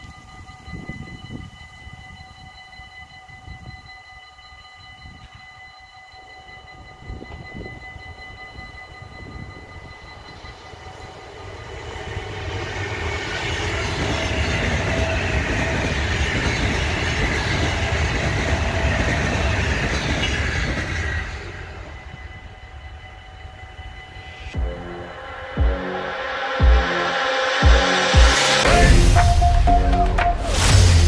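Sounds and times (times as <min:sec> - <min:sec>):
train wheels rushing on rails: 0:07.0 - 0:31.0.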